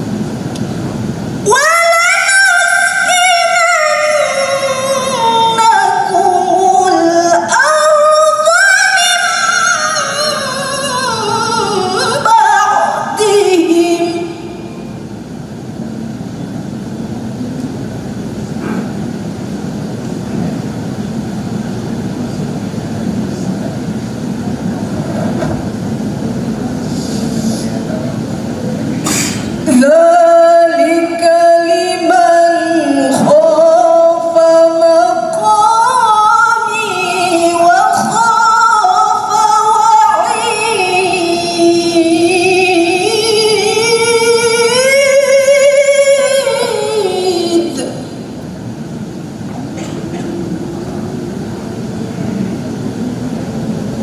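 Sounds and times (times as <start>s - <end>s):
murmur of room and crowd noise: 0.0s - 54.0s
woman reciting melodically: 1.4s - 15.2s, 29.1s - 48.4s.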